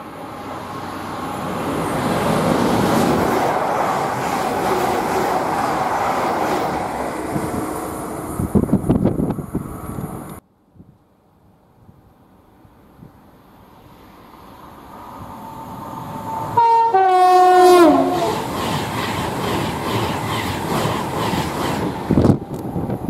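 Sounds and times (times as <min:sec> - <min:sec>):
train rumbling: 0:00.0 - 0:10.4, 0:13.4 - 0:23.0
two-tone train horn: 0:15.2 - 0:18.5.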